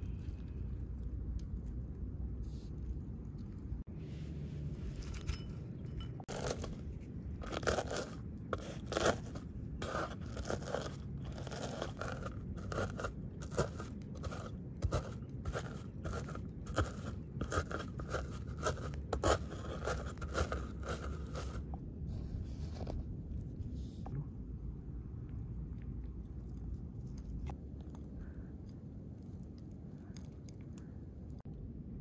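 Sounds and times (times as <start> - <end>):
stone crushing walnuts on wood: 7.4 - 21.7.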